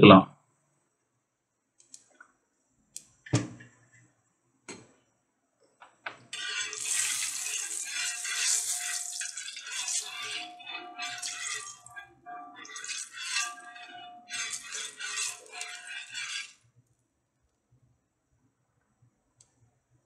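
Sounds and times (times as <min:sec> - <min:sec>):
spatula working pan: 0:06.3 - 0:16.6
hot oil sizzling on pan: 0:06.4 - 0:16.6.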